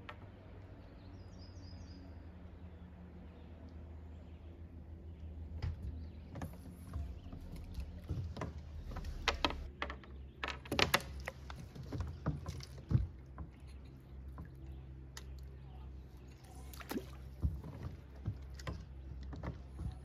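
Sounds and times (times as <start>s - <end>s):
short knocks and clicks: 5.6s - 13.6s.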